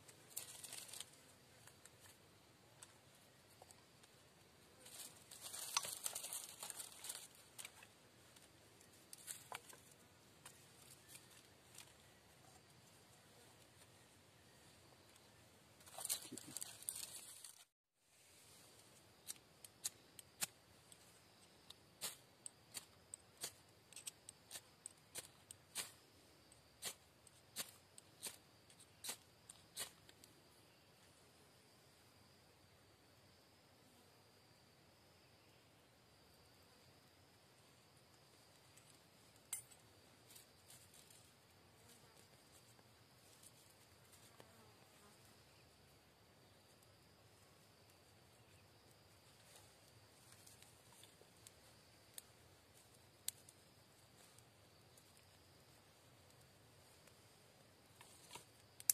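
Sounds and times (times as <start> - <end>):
dry grass tinder crackling: 0.3 - 2.1, 4.8 - 11.9, 15.8 - 17.7
high insect whine: 18.6 - 58.9.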